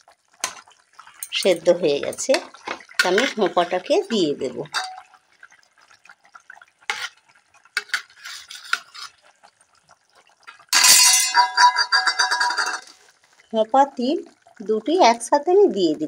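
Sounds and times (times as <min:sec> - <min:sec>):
metal spoon scraping wok: 0:06.9 - 0:07.2, 0:07.8 - 0:09.2, 0:10.8 - 0:13.0
spoon clinking on wok: 0:10.7 - 0:12.9.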